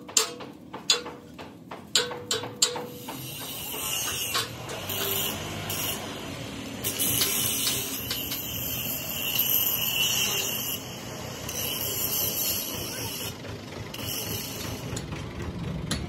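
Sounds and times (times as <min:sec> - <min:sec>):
angle grinder sanding metal: 0:02.9 - 0:15.0.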